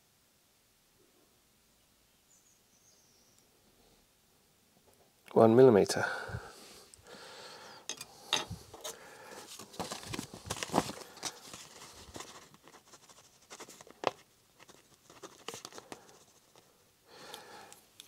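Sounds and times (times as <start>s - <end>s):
paper rustling: 8.7s - 16.7s.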